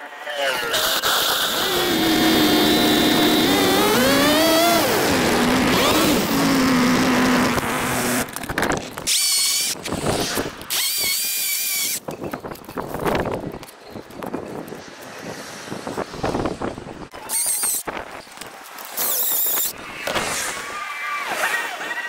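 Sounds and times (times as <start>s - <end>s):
power tool whirring: 0.7s - 8.4s, 9.1s - 12.0s
string trimmer cutting grass: 0.8s - 8.4s, 9.1s - 12.0s.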